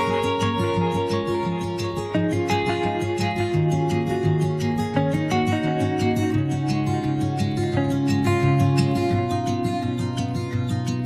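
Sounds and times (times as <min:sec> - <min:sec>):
plucked guitar music: 0:00.0 - 0:11.0.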